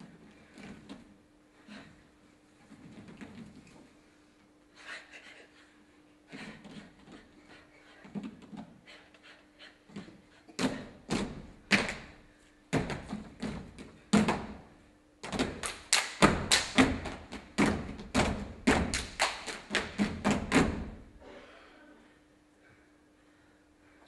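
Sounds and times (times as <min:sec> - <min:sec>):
body percussion thuds and slaps: 0:12.7 - 0:21.0.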